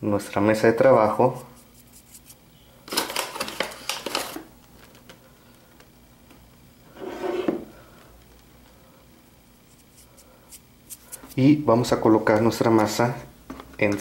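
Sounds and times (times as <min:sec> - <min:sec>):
hand rubbing table: 0:06.9 - 0:07.7, 0:09.6 - 0:11.5.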